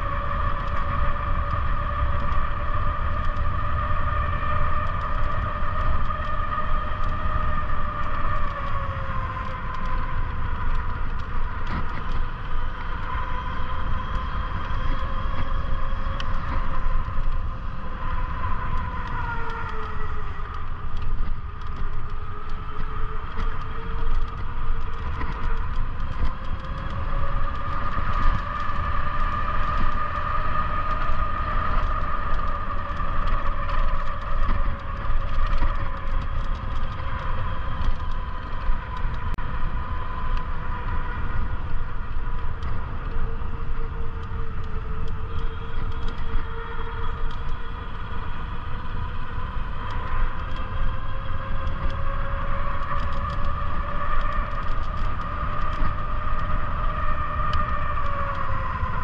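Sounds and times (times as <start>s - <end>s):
electric bike motor whining: 0.0s - 59.0s
wind on microphone: 0.0s - 59.0s.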